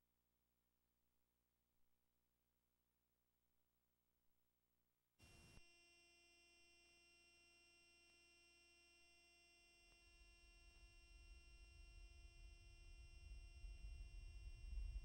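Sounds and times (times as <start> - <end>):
tape playback hum and whine: 9.2 - 15.0.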